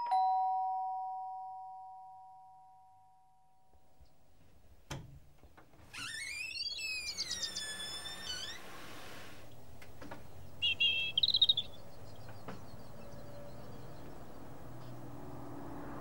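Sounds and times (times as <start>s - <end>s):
two-tone doorbell chime: 0.0s - 3.3s
birds chirping: 6.0s - 8.8s, 9.4s - 14.8s.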